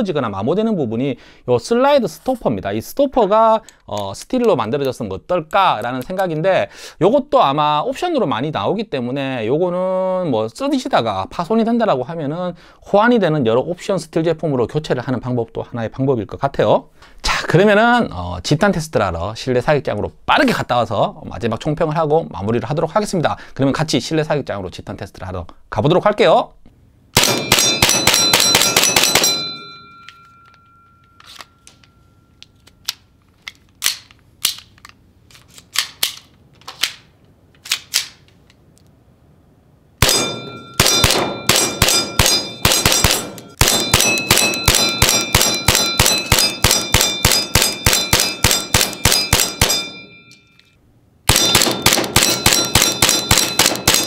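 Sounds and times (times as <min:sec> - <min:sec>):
airsoft pistol firing: 0:27.2 - 0:29.6, 0:40.0 - 0:49.9, 0:51.3 - 0:54.0.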